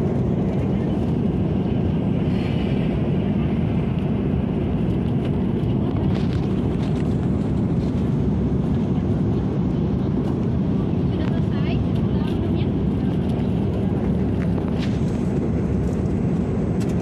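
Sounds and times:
airplane cabin rumble: 0.0s - 17.0s.

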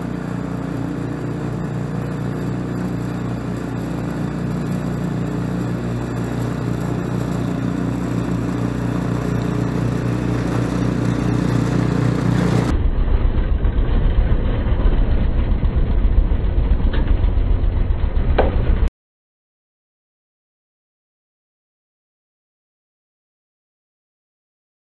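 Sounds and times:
snow spraying: 0.0s - 12.7s
snowblower engine running: 0.0s - 18.9s.

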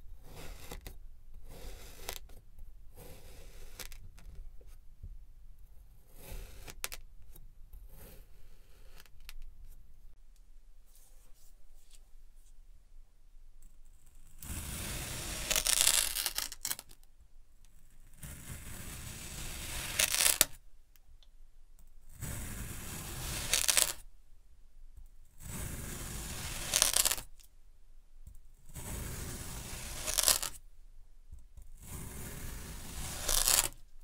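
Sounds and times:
knife cutting kinetic sand: 0.1s - 4.8s, 5.7s - 9.8s, 13.6s - 17.0s, 17.8s - 20.6s, 22.1s - 24.1s, 25.2s - 27.5s, 28.6s - 30.6s, 31.6s - 33.9s.

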